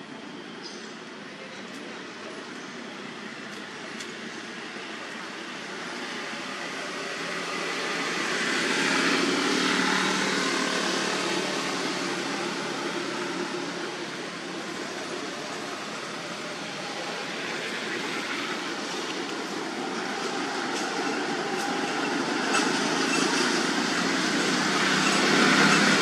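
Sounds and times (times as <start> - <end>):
vehicle passing by: 6.9 - 14.5, 23.4 - 26.0.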